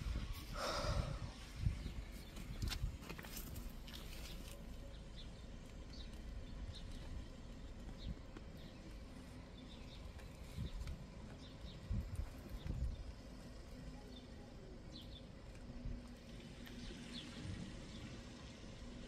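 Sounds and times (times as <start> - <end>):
wind rumble on microphone: 0.0 - 3.8, 6.3 - 9.0, 9.6 - 13.4.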